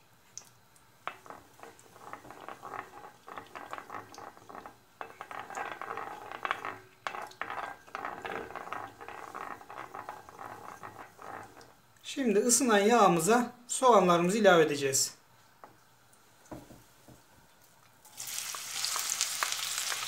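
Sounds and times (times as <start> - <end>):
butter and oil sizzling in a pan: 1.1 - 11.7, 18.1 - 20.0
wooden spoon scraping a pan: 1.1 - 11.8.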